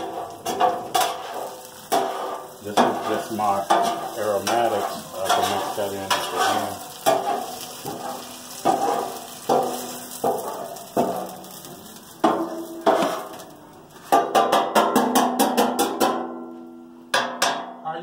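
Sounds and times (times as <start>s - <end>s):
aromatics sizzling in oil: 0.0s - 14.2s
metal spatula scraping a wok: 0.0s - 14.2s.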